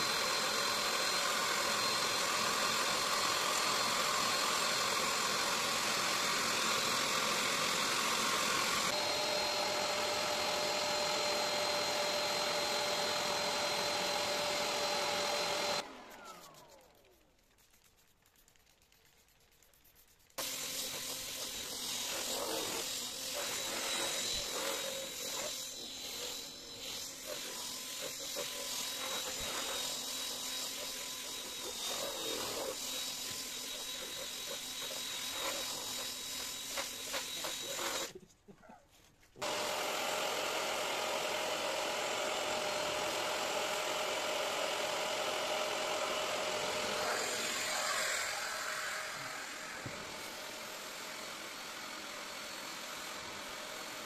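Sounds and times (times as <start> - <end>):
carpet extractor motor running: 0.0 - 16.8, 39.4 - 54.0
drill scrubbing fabric seat: 0.0 - 38.3, 39.4 - 54.0.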